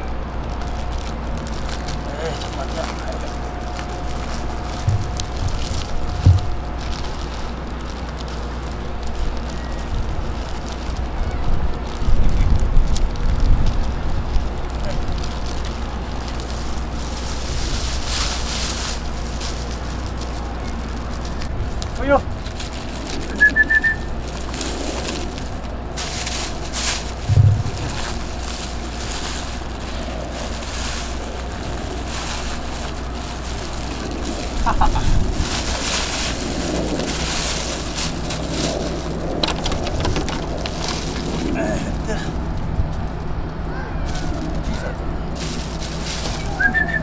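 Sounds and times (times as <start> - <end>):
short crackles: 0.0 - 43.3
cats crunching dry kibble: 0.0 - 47.0
steady low rumble: 0.0 - 47.0
wind on microphone: 3.6 - 7.2, 11.0 - 15.2, 27.2 - 30.1, 34.1 - 41.5.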